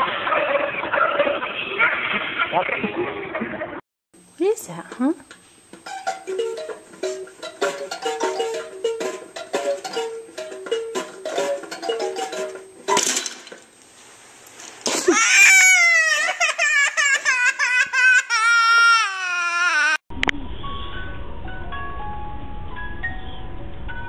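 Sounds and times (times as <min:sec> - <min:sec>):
toddler crying loudly: 0:15.0 - 0:20.0.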